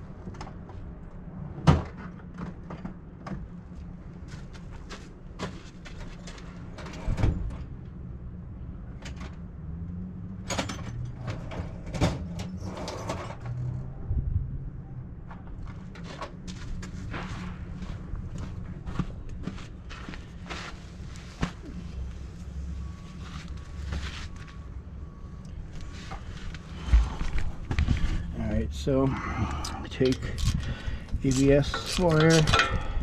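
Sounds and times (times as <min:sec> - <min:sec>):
steady low hum: 0:13.9 - 0:33.0
clanks and knocks of hand tools: 0:31.3 - 0:32.9.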